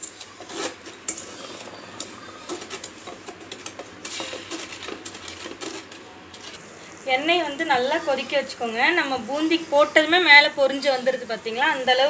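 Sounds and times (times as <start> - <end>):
wooden spatula scraping steel pot: 0.0 - 6.6.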